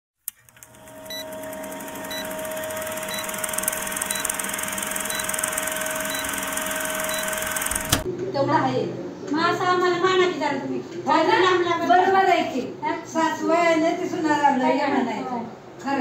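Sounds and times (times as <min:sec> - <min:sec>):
film projector whirring hiss: 0:00.3 - 0:08.1
short high beeps: 0:01.1 - 0:01.4, 0:02.0 - 0:07.9.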